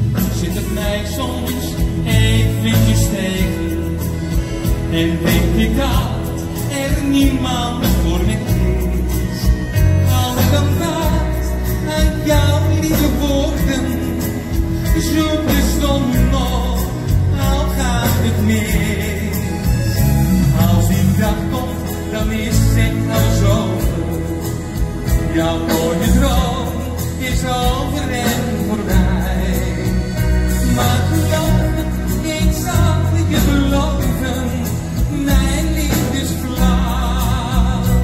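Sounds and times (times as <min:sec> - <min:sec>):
man singing into microphone: 0:00.0 - 0:38.0
rock band playing: 0:00.0 - 0:38.0.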